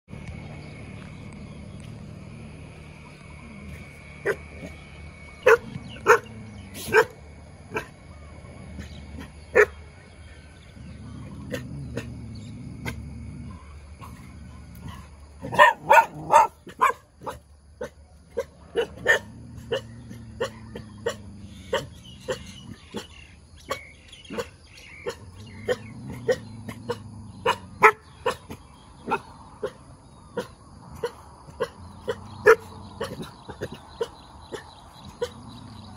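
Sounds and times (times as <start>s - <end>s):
dog barking: 5.4s - 7.9s, 9.5s - 9.8s, 14.8s - 23.1s, 23.7s - 29.8s, 30.4s - 35.4s.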